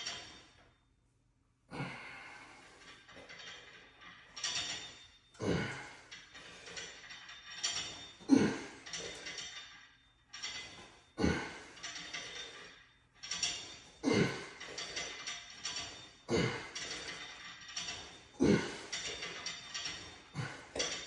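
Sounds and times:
heavy breathing: 1.7s - 2.8s, 5.4s - 6.6s.

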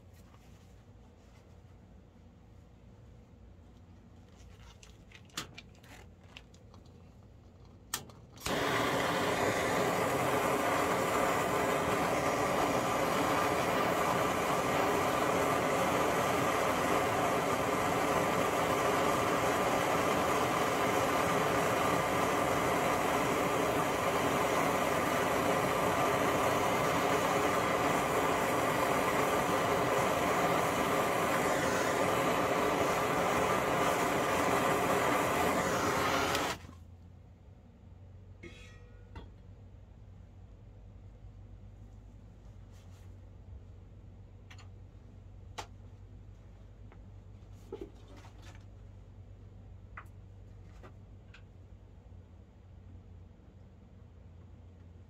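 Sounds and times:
gas torch flame: 8.0s - 36.7s.

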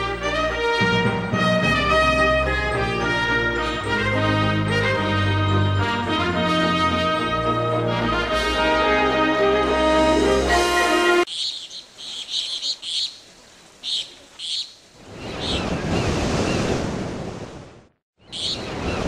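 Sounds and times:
music track: 0.0s - 11.3s
birds chirping: 11.2s - 16.8s, 18.2s - 19.0s.

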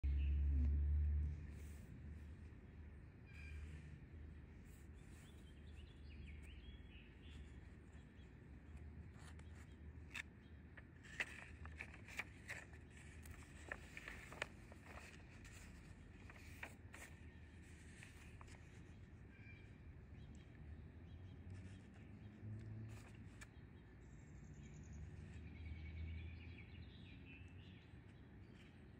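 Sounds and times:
faint low outdoor hum: 0.0s - 28.9s
paper pages turning: 8.6s - 19.2s, 22.9s - 23.5s.

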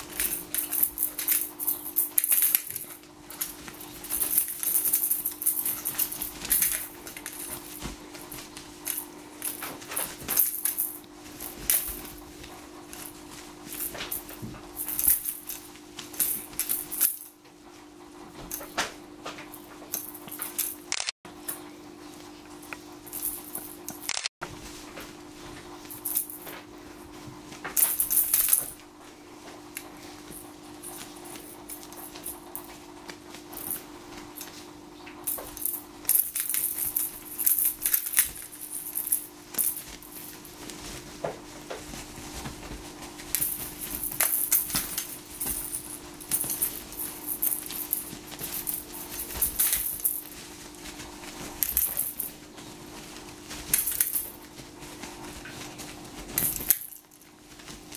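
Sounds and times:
steady hum: 0.0s - 57.9s.

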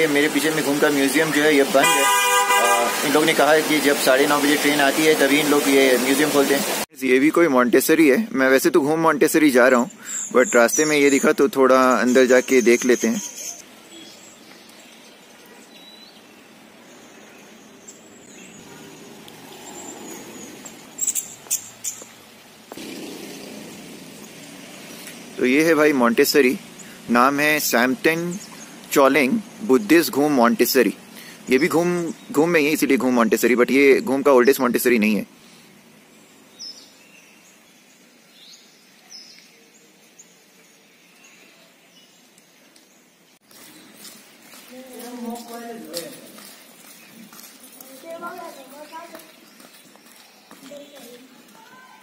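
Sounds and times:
birds chirping: 0.0s - 52.0s
outdoor background noise: 0.0s - 52.0s.

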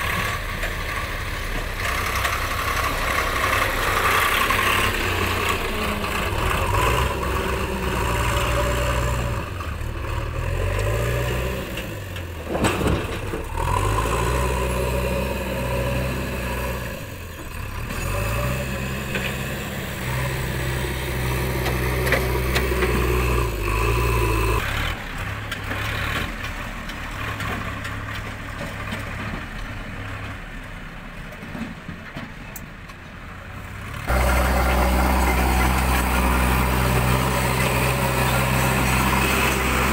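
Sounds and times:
diesel engines revving: 0.0s - 32.3s, 33.2s - 39.9s.

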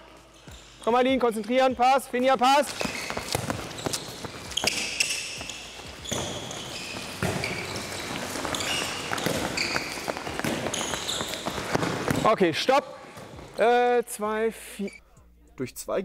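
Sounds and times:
shoes squeaking on court: 0.1s - 1.0s, 2.5s - 12.4s
running footsteps: 2.6s - 12.3s
balls bouncing on floor: 2.7s - 12.4s, 13.1s - 13.6s.

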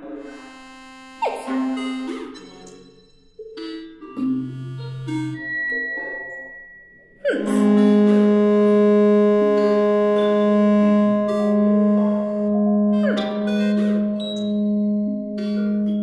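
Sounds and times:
sustained electronic chord: 0.0s - 2.4s, 7.4s - 16.0s
sparse synthesized tones: 0.0s - 16.0s.

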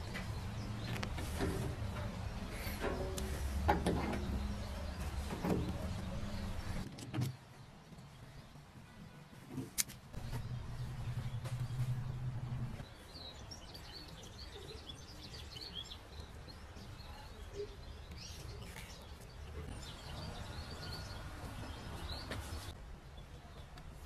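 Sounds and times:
low outdoor rumble: 0.0s - 6.9s, 10.1s - 15.1s
small birds chirping: 0.0s - 9.0s, 10.1s - 24.0s
low hum: 10.1s - 13.1s.

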